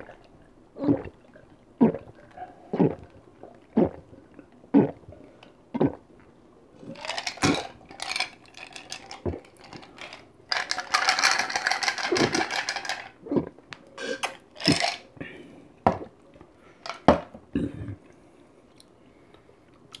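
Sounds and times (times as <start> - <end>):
gulping and slurping drink: 0.0 - 6.0, 6.8 - 10.0.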